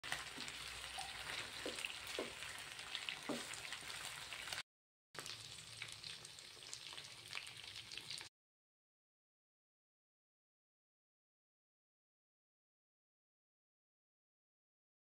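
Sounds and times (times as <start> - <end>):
chicken sizzling in hot oil: 0.0 - 4.6, 5.2 - 8.3.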